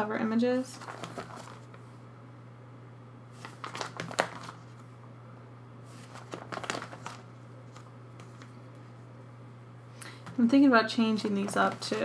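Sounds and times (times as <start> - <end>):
steady low hum: 0.0 - 12.0
plastic sleeves crinkling and clicking: 0.7 - 1.8, 3.4 - 4.8, 5.9 - 8.8, 11.2 - 12.0.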